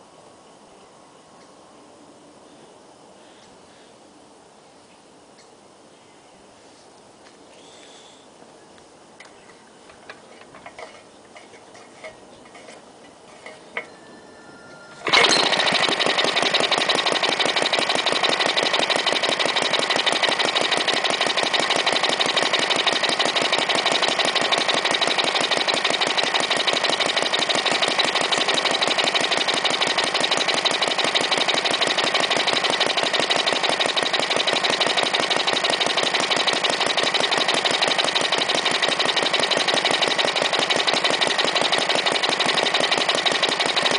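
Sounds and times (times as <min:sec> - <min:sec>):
single-cylinder engine running: 0:14.9 - 0:43.9.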